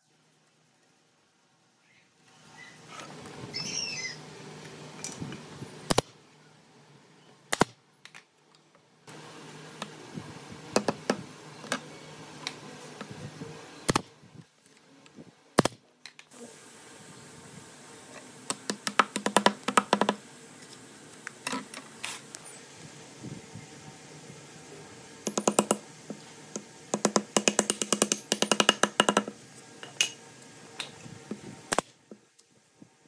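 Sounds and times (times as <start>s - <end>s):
bird chirping: 3.5s - 4.2s.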